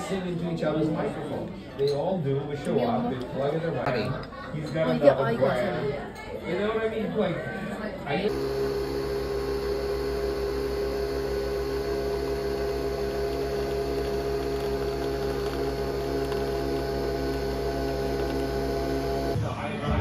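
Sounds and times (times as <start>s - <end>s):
coffee machine motor humming: 8.3s - 19.4s.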